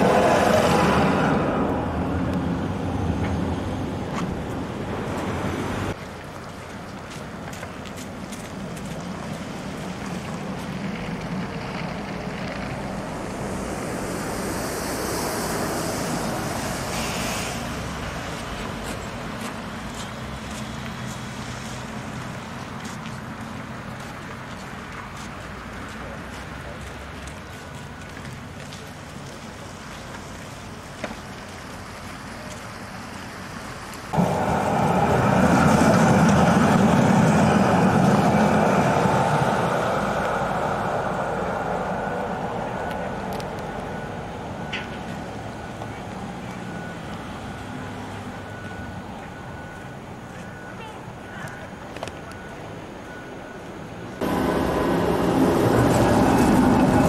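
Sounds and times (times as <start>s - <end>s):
tram wheels rushing on rails: 0.0s - 6.0s, 9.0s - 19.0s, 34.1s - 45.1s, 54.2s - 57.0s.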